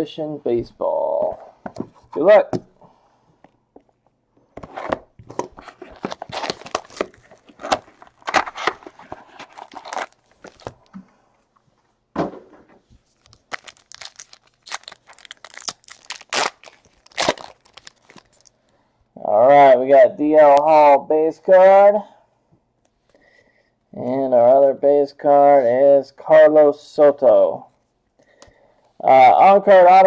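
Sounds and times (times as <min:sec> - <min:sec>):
card packs tearing and crinkling: 0:05.4 - 0:10.9, 0:13.1 - 0:18.5.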